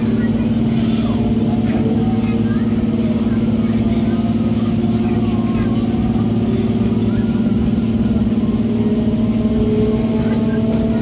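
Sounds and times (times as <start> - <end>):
train running heard on board: 0.0 - 11.0.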